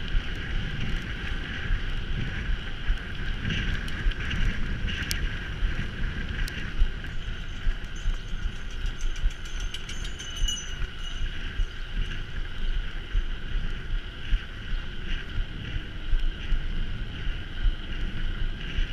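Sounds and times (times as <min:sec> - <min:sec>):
bike rolling noise: 0:00.0 - 0:18.9
wind buffeting microphone: 0:00.0 - 0:18.9
sharp clicks and rattles: 0:06.5 - 0:11.1.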